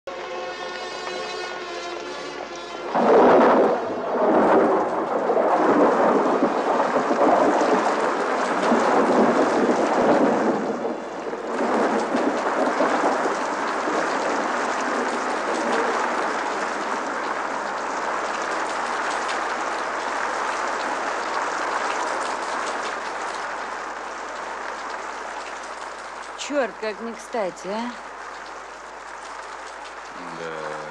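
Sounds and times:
pouring rain: 0.1s - 30.9s
thunder crack: 2.0s - 20.5s
rolling thunder: 2.4s - 24.0s.

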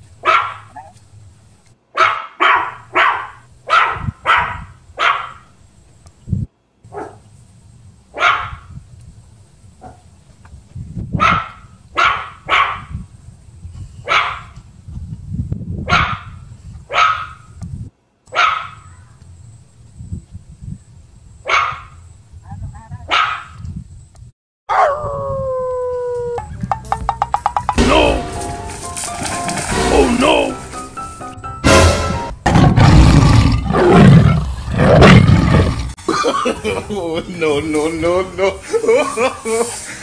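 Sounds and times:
dog barking: 0.2s - 0.9s, 2.0s - 5.4s, 6.9s - 7.2s, 8.2s - 8.6s, 11.2s - 12.9s, 14.1s - 14.5s, 15.9s - 16.3s, 16.9s - 17.4s, 18.3s - 18.8s, 21.5s - 21.9s, 23.1s - 23.6s, 24.7s - 25.0s.

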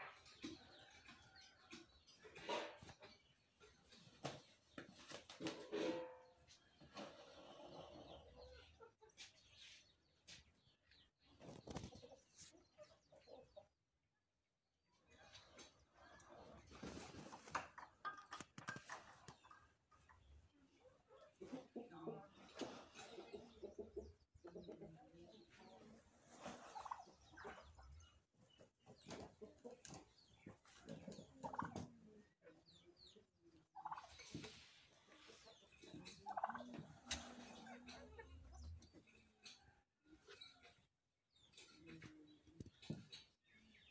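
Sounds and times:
chickens and turkeys clucking: 0.0s - 14.2s, 14.9s - 43.9s
turkey gobbling: 26.4s - 27.8s, 30.8s - 31.9s, 33.8s - 34.6s, 35.4s - 38.4s.

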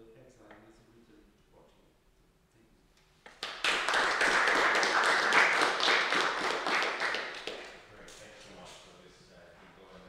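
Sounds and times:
small audience applauding: 3.2s - 7.9s.

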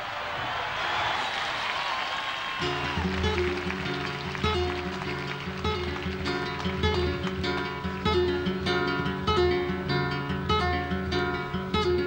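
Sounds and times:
acoustic guitar playing: 2.6s - 12.0s.

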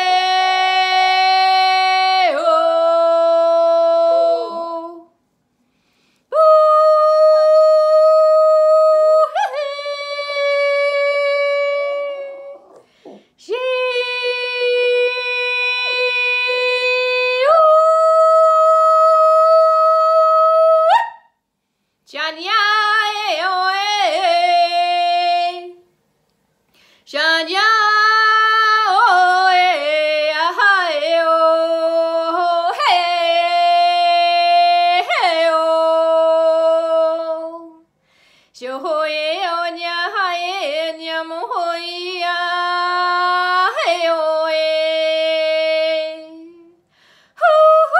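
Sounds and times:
woman singing wordless tones: 0.0s - 5.2s, 6.3s - 21.0s, 22.1s - 25.9s, 27.1s - 37.9s, 38.6s - 46.8s, 47.4s - 47.9s.

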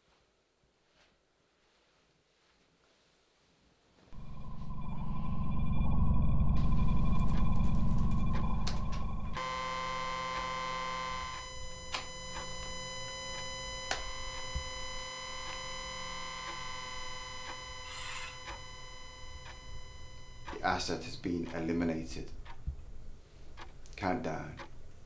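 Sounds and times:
loud low rumble: 4.2s - 9.4s
synthesizer drone: 4.2s - 20.9s
sharp clicks: 10.3s - 20.6s.

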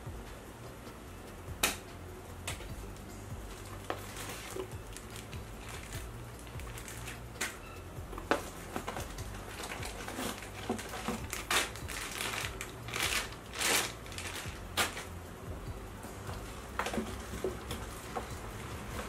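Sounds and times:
plastic packaging crinkling: 3.9s - 7.6s, 8.2s - 15.2s.

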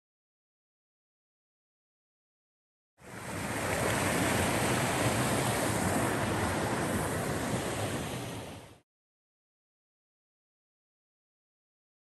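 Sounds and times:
river water rushing: 3.0s - 8.8s.

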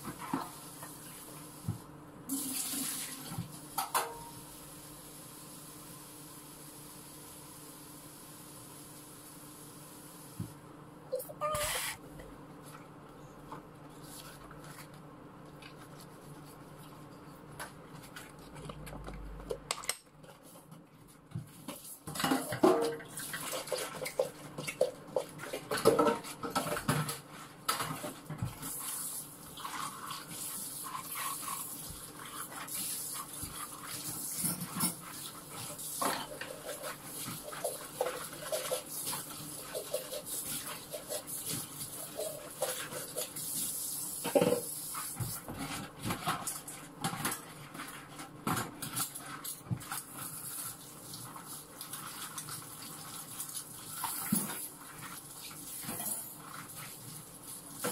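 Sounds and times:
tap water running: 0.0s - 4.5s, 21.3s - 45.6s, 47.6s - 57.9s
dishes clattering: 22.1s - 23.2s.

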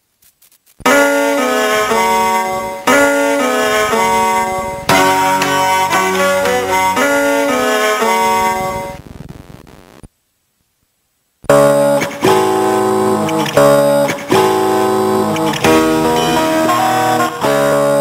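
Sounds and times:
electronic toy tune: 0.9s - 9.0s.

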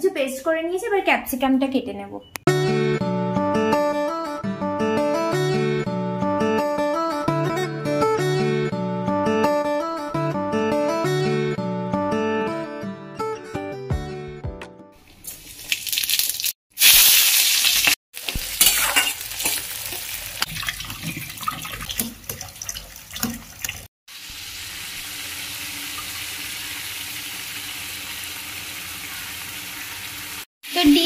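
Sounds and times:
food sizzling in oil: 15.0s - 31.0s
clatter of handling and stirring: 20.4s - 23.9s.

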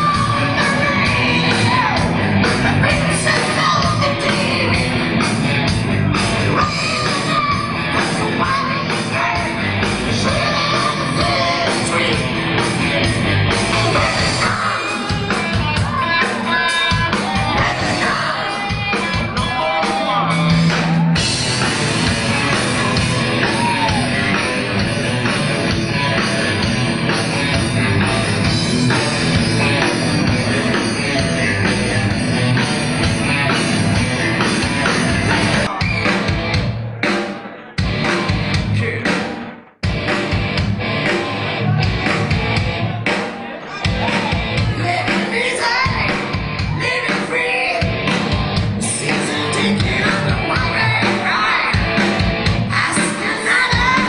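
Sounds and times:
person singing and shouting: 0.0s - 5.0s, 6.3s - 13.0s, 13.6s - 21.2s, 41.0s - 48.1s, 48.8s - 54.0s
live rock band playing: 0.0s - 54.0s.

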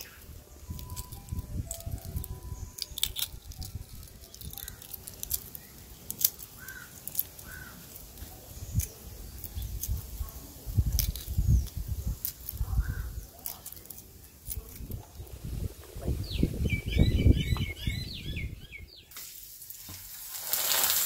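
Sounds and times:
bird chirping: 0.0s - 7.8s, 12.6s - 19.2s
wood fire crackling: 0.0s - 16.6s, 19.1s - 21.0s.

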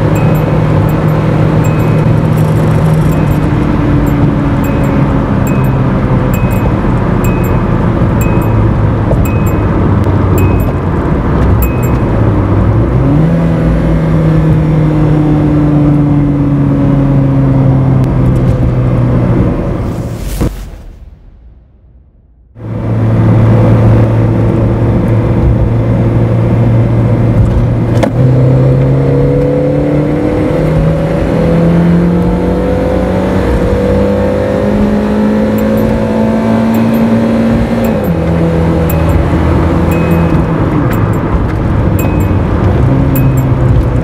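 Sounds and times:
car engine revving: 0.0s - 17.7s, 28.0s - 44.0s.

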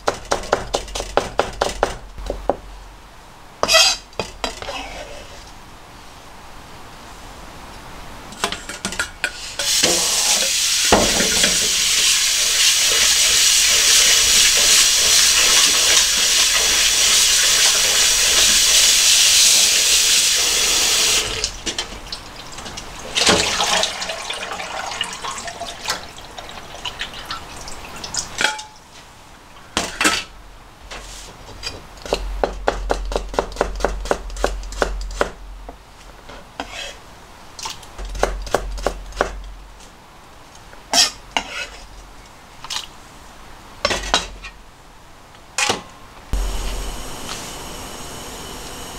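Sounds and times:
colander and bowls clattering: 8.4s - 11.8s.

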